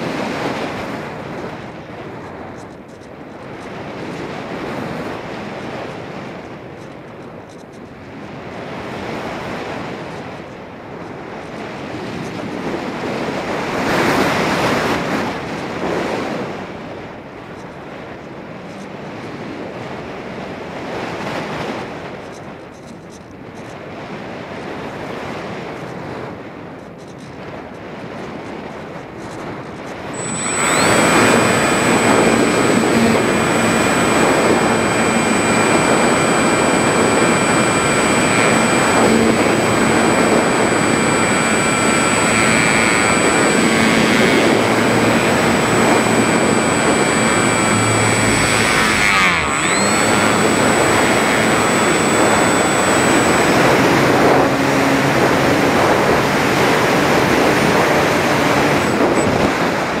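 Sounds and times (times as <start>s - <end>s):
electric motor and propeller whine: 0.0s - 16.6s, 28.8s - 60.0s.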